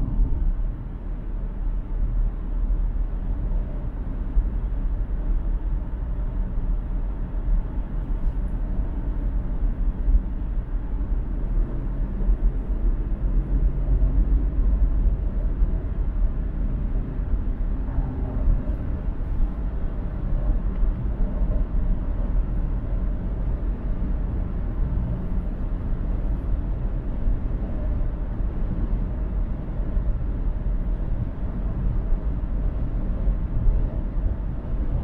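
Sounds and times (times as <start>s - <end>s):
car driving at highway speed: 0.0s - 35.0s.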